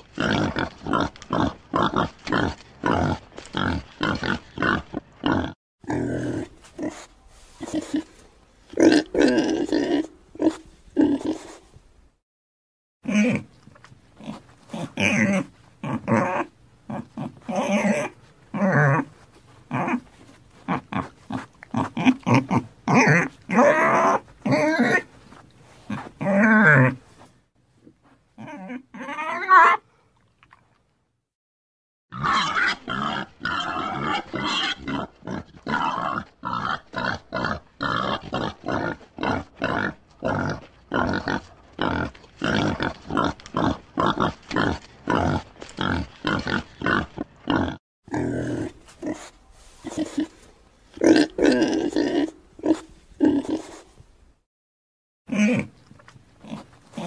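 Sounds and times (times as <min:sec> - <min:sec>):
pig grunting: 0:00.0 - 0:11.6, 0:14.2 - 0:19.1, 0:19.7 - 0:20.0, 0:20.6 - 0:25.1, 0:32.1 - 0:50.4, 0:51.0 - 0:53.9, 0:55.3 - 0:55.7
pig squealing: 0:14.2 - 0:19.1, 0:21.7 - 0:25.1, 0:28.4 - 0:29.8, 0:32.1 - 0:48.7.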